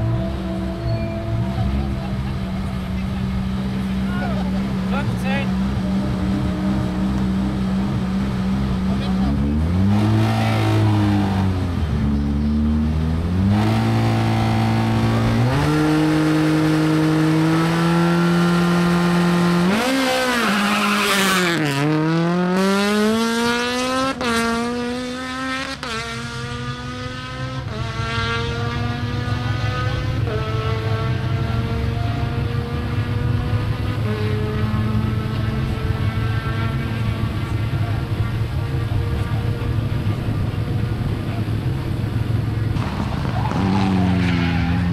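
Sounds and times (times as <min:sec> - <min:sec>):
car accelerating and shifting gears: 0:00.0 - 0:44.9
rally car engine revving: 0:00.0 - 0:44.9
tyre squeal: 0:00.7 - 0:01.5.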